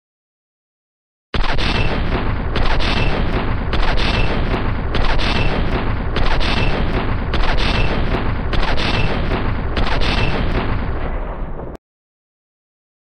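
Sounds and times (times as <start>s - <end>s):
machine-gun fire: 1.4s - 11.8s.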